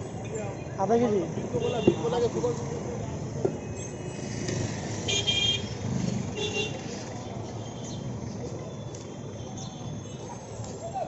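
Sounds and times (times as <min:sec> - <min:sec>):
street traffic noise: 0:00.0 - 0:11.0
vehicle horn honking: 0:01.6 - 0:02.3, 0:05.1 - 0:05.7, 0:06.4 - 0:06.8.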